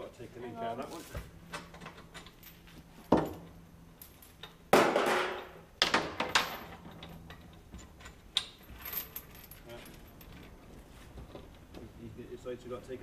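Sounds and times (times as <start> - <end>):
chains clanking against steel: 1.7 - 4.7, 6.2 - 10.6.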